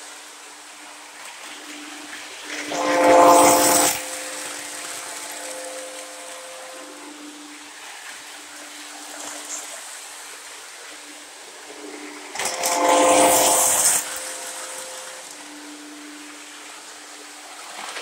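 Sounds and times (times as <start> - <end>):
model train humming: 2.5 - 7.6, 12.3 - 15.8
train horn blast: 2.7 - 7.2, 12.4 - 15.4.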